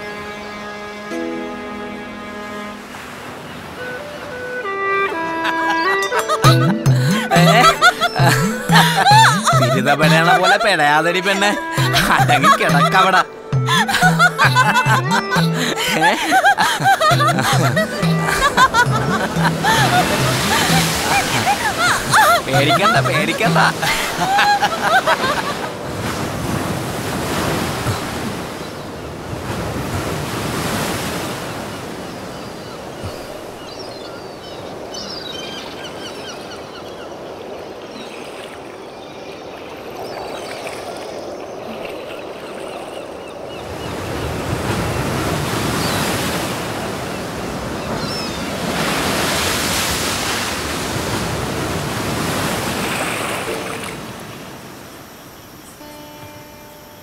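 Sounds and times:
surf breaking on rocks: 15.6 - 32.1, 44.1 - 54.7.

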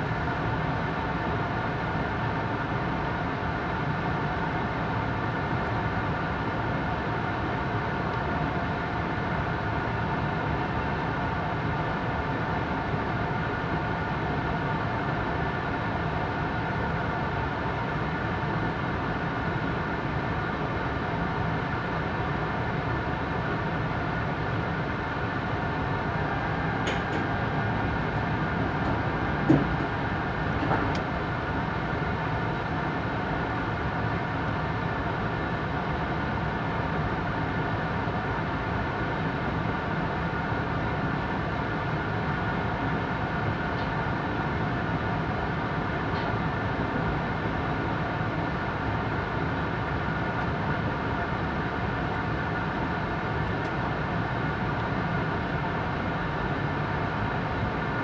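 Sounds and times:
train cabin rumble: 25.1 - 33.2.

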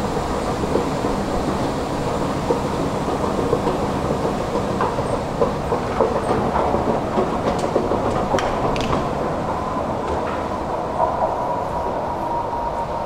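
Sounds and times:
escalator steps clattering: 0.0 - 12.0.

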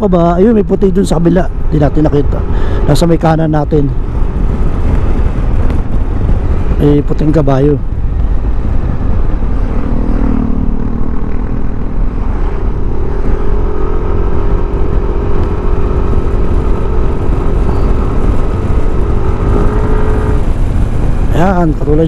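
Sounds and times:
wind rumble on microphone: 0.0 - 22.0
scooter engine droning: 8.7 - 21.6.

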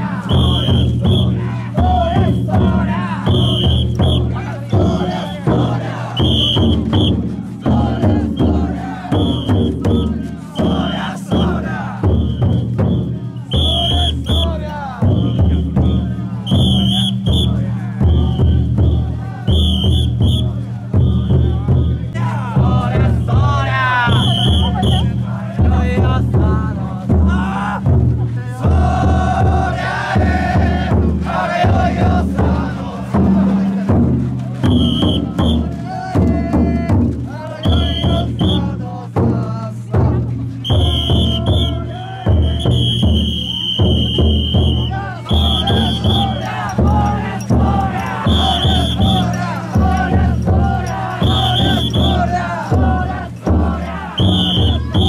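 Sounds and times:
big drum beating: 0.0 - 55.0
crowd shouting chants: 0.0 - 55.0
shrill whistle blasts: 0.2 - 1.4, 3.2 - 4.4, 6.0 - 7.2, 9.2 - 22.1, 24.0 - 25.1, 34.6 - 35.7, 37.6 - 38.7, 40.6 - 47.4, 48.0 - 50.2, 50.9 - 52.4, 54.1 - 55.0.

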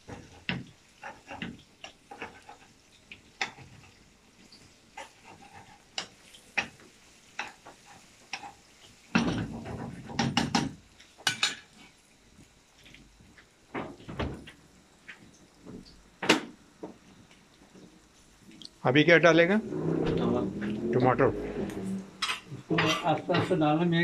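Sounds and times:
faint frying sizzle: 0.0 - 19.6, 20.2 - 24.0
metal spatula scraping wok: 19.6 - 23.2.

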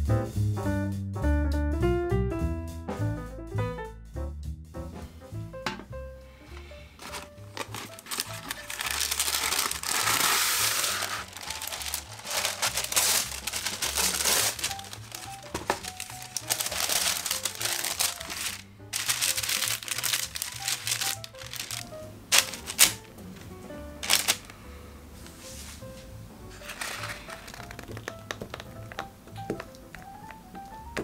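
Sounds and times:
soft background music: 4.7 - 31.0
baking paper crinkling: 6.6 - 23.1, 24.0 - 24.6, 26.5 - 28.7.

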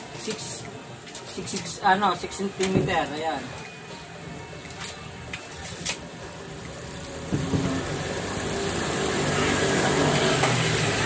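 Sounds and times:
vehicle engine running: 6.2 - 11.0.

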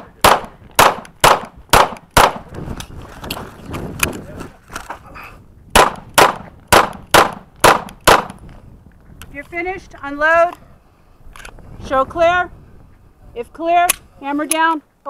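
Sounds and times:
pistol shots: 0.0 - 2.5, 5.8 - 8.4.

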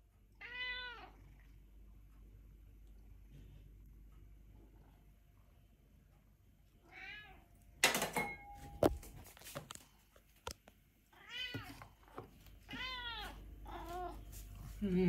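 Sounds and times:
cat meowing: 0.4 - 1.2, 6.8 - 7.4, 12.7 - 14.2.

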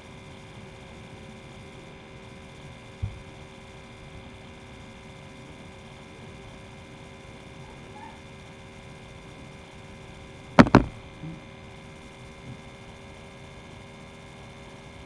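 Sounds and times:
electrical hum: 0.0 - 15.0
short low thump: 10.6 - 11.0.

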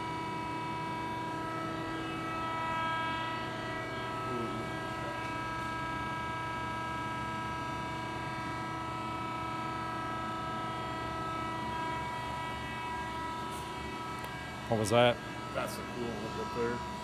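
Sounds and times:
band saw running: 0.0 - 6.9, 10.4 - 17.0.

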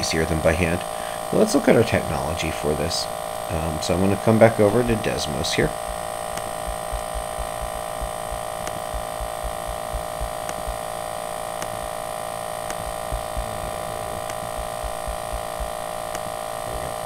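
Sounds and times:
electrical hum: 0.0 - 17.0
low thuds: 4.8 - 17.0
faint clicks: 5.8 - 10.8, 11.5 - 12.0, 12.6 - 13.4, 14.2 - 16.9.

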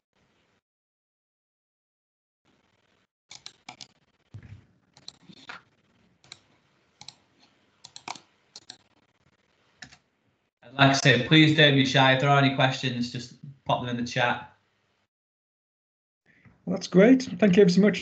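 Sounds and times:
keyboard typing clicks: 3.3 - 3.9, 7.9 - 8.8.

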